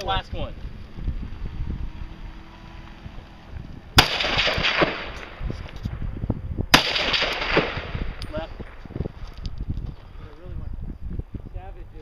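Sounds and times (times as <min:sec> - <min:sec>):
rifle shot with echo: 0:04.0 - 0:05.4, 0:06.7 - 0:08.8.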